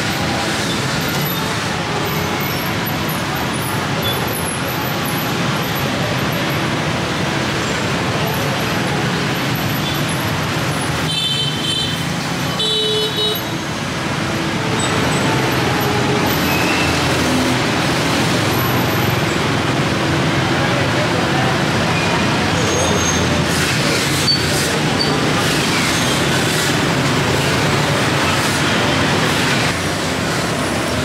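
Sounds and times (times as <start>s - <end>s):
passing motor vehicles: 0.0s - 31.0s.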